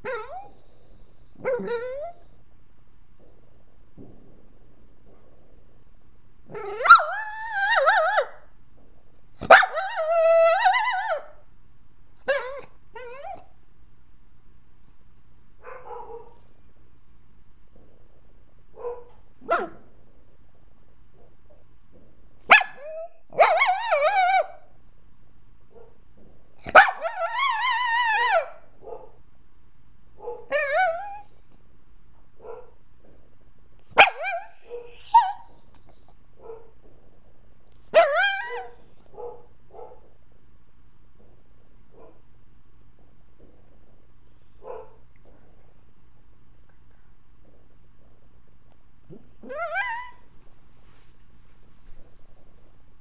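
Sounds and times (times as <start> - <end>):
dog whimpering: 0.0 - 0.6, 1.4 - 2.3, 6.5 - 8.4, 12.3 - 13.5, 34.0 - 35.6, 49.1 - 50.3
dog howling and whining: 0.0 - 0.8, 1.4 - 2.4, 6.5 - 8.6, 9.4 - 11.5, 12.2 - 13.6, 22.5 - 24.7, 26.6 - 28.8, 30.4 - 31.4, 34.0 - 35.6, 37.9 - 39.0, 49.1 - 50.3.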